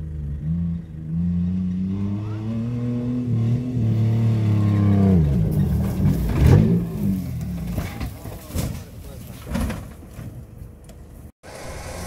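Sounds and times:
off-road engine revving: 0:00.0 - 0:08.3, 0:11.4 - 0:12.0.

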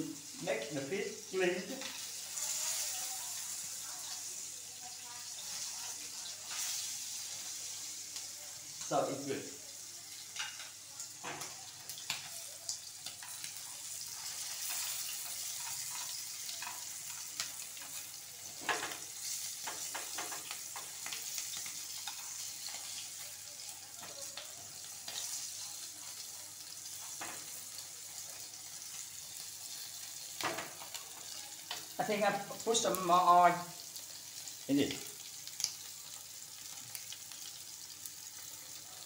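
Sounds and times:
fish sizzling in oil: 0:00.0 - 0:39.0
chopsticks clicking and scraping pan: 0:10.3 - 0:23.3, 0:24.0 - 0:26.2.

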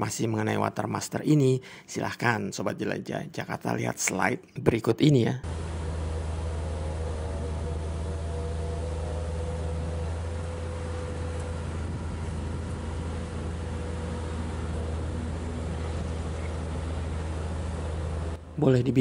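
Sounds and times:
higher wavering tone: 0:05.4 - 0:18.4
engine droning: 0:05.4 - 0:19.0.

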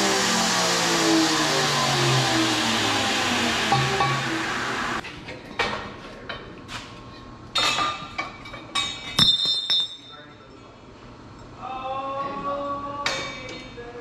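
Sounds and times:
loud steady noise: 0:00.0 - 0:05.0
metal tools clinking: 0:08.8 - 0:10.6.

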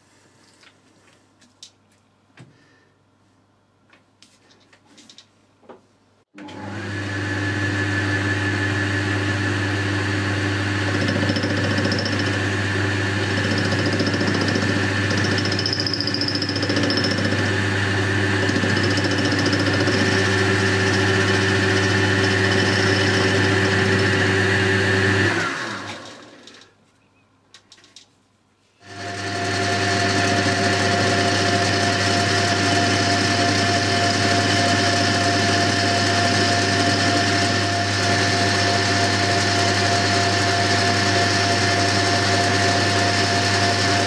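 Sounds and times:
metal lathe running: 0:09.2 - 0:25.7, 0:28.9 - 0:44.0.

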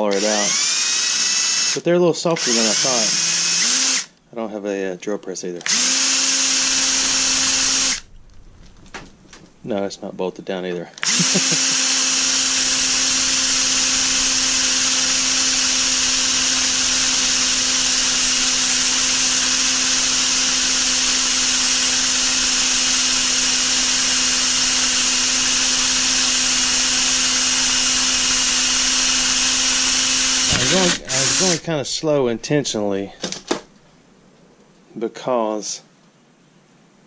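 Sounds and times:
cordless drill boring through rubber: 0:00.0 - 0:04.2, 0:05.6 - 0:08.1, 0:11.0 - 0:31.7.

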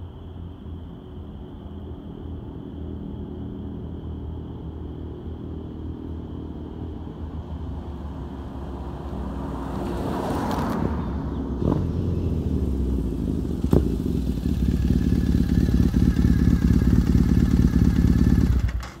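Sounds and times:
motorcycle passing by: 0:08.0 - 0:19.0.

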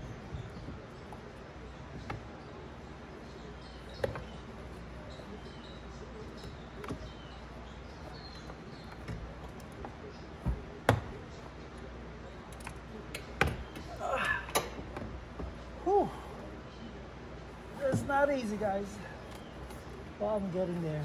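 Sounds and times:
tools clicking and knocking on metal: 0:00.0 - 0:02.9, 0:03.8 - 0:05.3, 0:05.9 - 0:15.7
steady low hum: 0:00.0 - 0:21.0.

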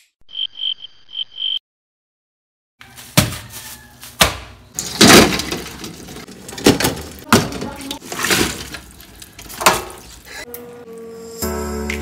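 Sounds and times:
plastic bags rustling: 0:04.8 - 0:10.4.

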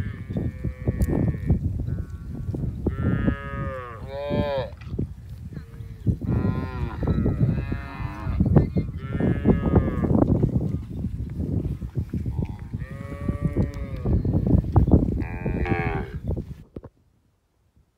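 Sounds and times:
cows mooing: 0:02.8 - 0:04.8, 0:05.7 - 0:10.1, 0:12.5 - 0:14.2, 0:15.2 - 0:16.2.

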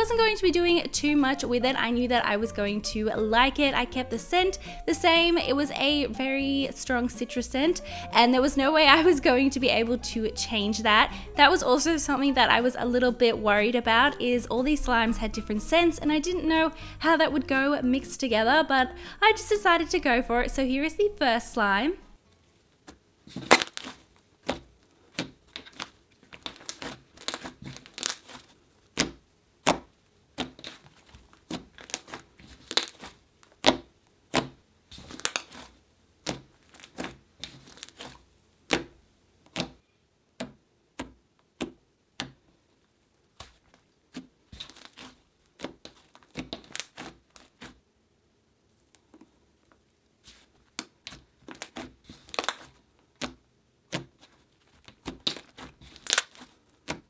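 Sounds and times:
slime sticky clicks and crackles: 0:23.4 - 0:29.8, 0:30.4 - 0:38.8, 0:44.6 - 0:47.7, 0:50.8 - 0:57.0.

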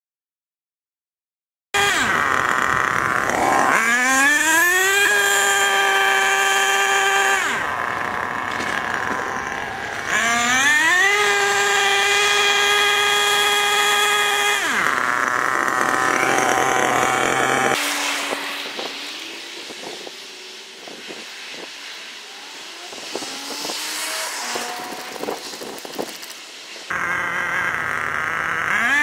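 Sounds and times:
rc truck engine whining: 0:01.8 - 0:29.0.

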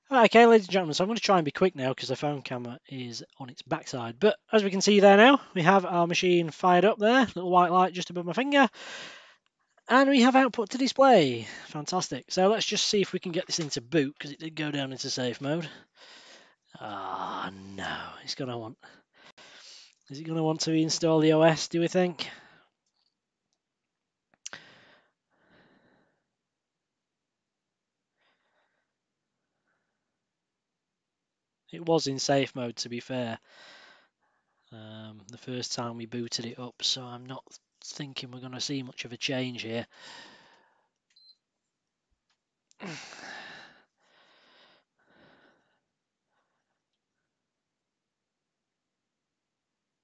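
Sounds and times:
soft breath: 0:08.7 - 0:09.4, 0:15.7 - 0:16.6
man sighing: 0:16.8 - 0:18.2, 0:42.8 - 0:43.8
man sighing heavily: 0:42.8 - 0:43.8.

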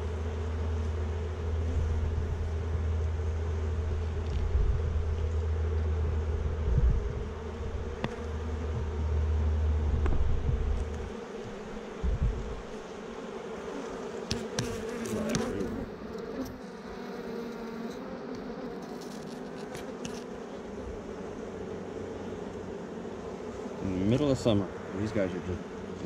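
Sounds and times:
bees buzzing: 0:00.0 - 0:26.0
low rumble: 0:05.9 - 0:11.1
hive tool clicking and scraping: 0:08.0 - 0:08.4, 0:13.8 - 0:16.6, 0:17.5 - 0:20.4.

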